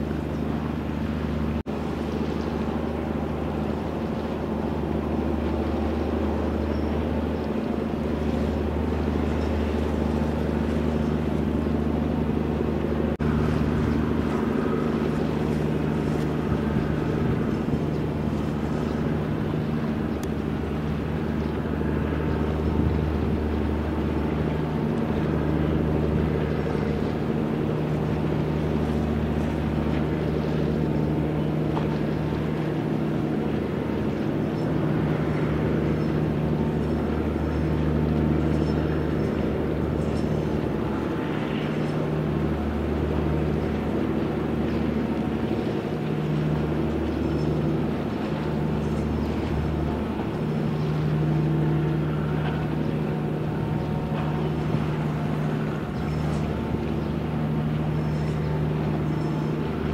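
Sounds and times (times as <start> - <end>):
ship diesel engine droning: 0.0 - 59.9.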